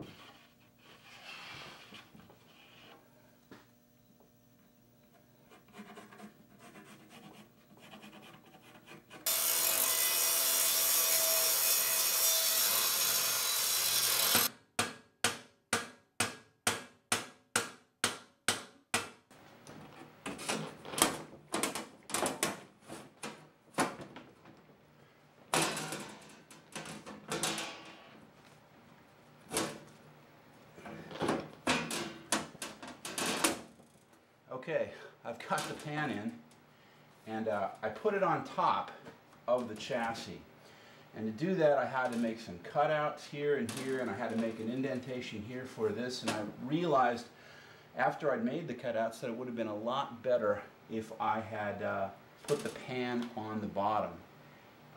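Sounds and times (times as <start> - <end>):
power tool running: 9.3 - 14.5.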